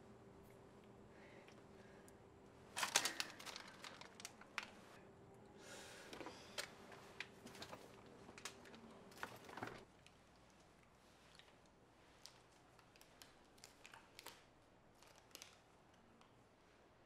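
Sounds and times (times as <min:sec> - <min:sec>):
faint steady hum: 0:00.0 - 0:17.0
plastic bags rustling: 0:02.7 - 0:05.0, 0:06.1 - 0:09.9.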